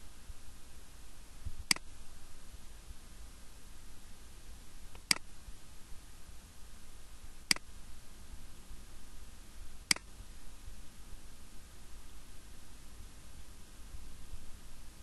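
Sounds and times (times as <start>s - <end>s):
faint steady hiss: 0.0s - 15.0s
computer mouse clicks: 1.7s - 1.9s, 4.9s - 5.2s, 7.5s - 7.7s, 9.9s - 10.1s.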